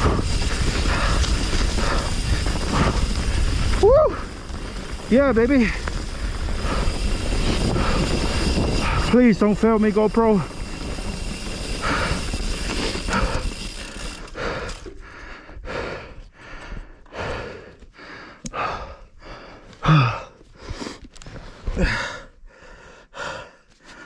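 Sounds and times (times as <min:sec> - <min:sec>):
person gasping breaths: 0:00.0 - 0:04.4, 0:05.7 - 0:09.1, 0:11.7 - 0:24.0
steady rushing noise: 0:00.0 - 0:14.2.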